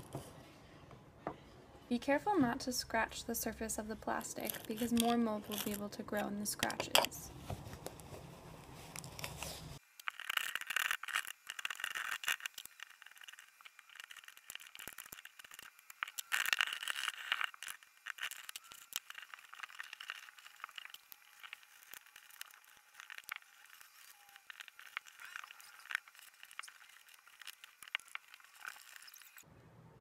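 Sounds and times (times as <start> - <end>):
razor scraper scratching caulk: 3.5 - 7.1, 10.0 - 29.4.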